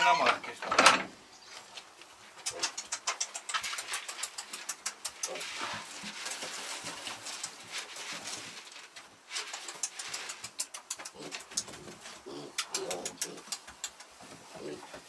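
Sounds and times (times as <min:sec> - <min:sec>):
piglets grunting: 0:11.0 - 0:13.6.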